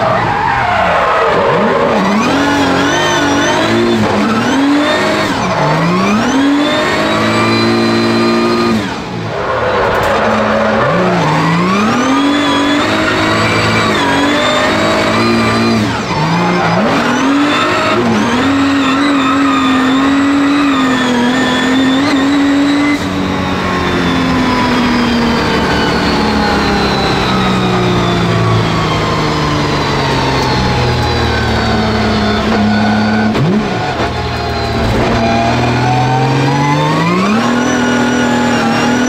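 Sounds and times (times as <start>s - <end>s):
car engine revving hard: 0.0s - 39.0s.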